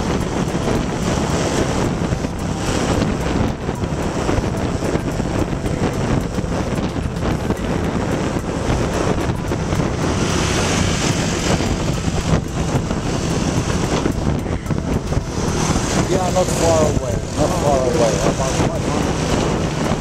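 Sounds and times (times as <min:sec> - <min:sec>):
motorbike engine: 0:00.0 - 0:20.0
road noise: 0:00.0 - 0:20.0
wind buffeting microphone: 0:00.0 - 0:20.0.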